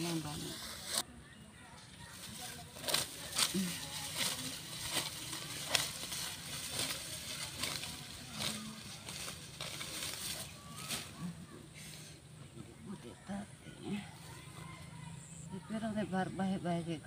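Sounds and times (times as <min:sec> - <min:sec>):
grass stalks being cut: 0:02.1 - 0:11.5.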